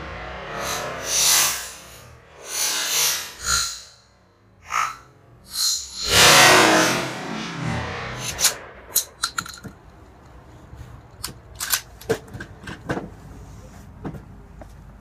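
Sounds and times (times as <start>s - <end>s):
shotgun handling clicks and knocks: 9.0s - 10.3s, 11.1s - 13.1s.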